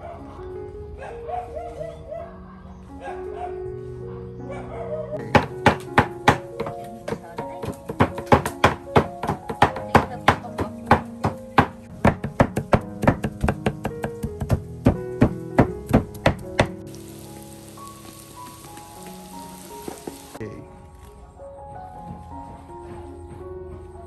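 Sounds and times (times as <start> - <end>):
cleavers chopping on wooden block: 5.2 - 16.8
tofu sizzling in oil: 16.8 - 20.4.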